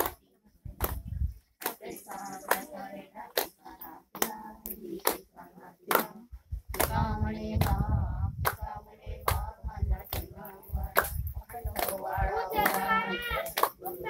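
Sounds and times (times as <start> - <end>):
hands clapping slowly: 0.8 - 9.5, 10.1 - 14.0
person singing: 12.0 - 14.0.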